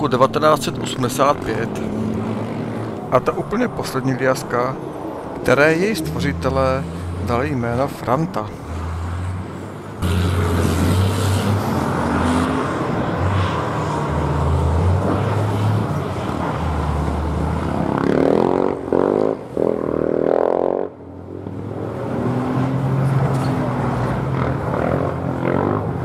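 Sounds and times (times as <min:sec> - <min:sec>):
diesel truck engines droning: 0:00.0 - 0:26.0
engine revving: 0:10.0 - 0:21.0.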